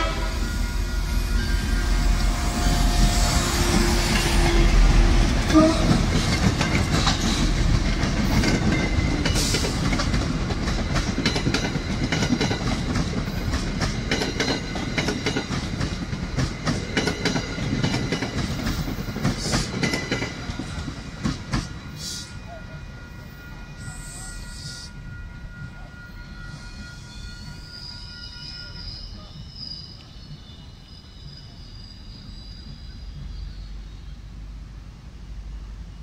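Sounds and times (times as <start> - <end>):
train horn: 0.0 - 6.4, 21.9 - 29.4
wheels clacking over rail joints: 3.0 - 21.8.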